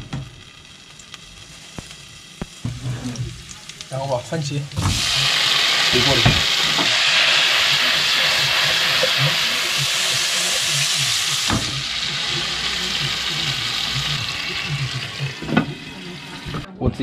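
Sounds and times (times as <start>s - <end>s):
food sizzling in hot oil: 0.0s - 16.7s.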